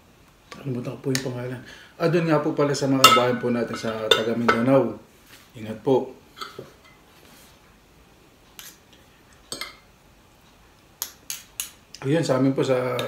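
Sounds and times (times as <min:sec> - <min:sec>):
cutlery clinking on a plate: 0:03.0 - 0:04.7.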